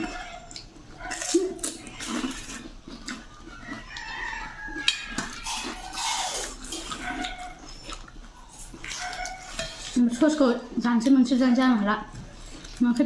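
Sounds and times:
spoons clinking on steel plates: 8.9s - 10.5s.

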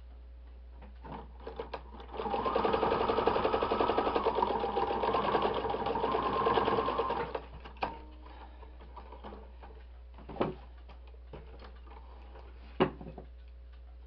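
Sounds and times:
sewing machine clicks: 1.0s - 8.0s
sewing machine stitching: 1.1s - 7.5s.

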